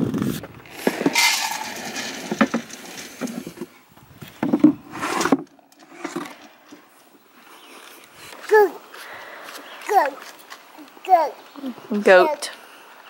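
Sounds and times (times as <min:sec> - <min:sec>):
feed rustling: 0:00.6 - 0:07.1.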